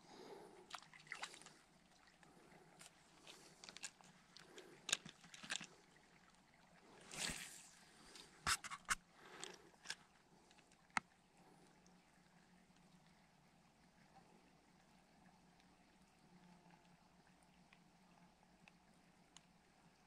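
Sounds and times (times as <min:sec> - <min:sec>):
fishing rod swish: 0:07.1 - 0:07.8.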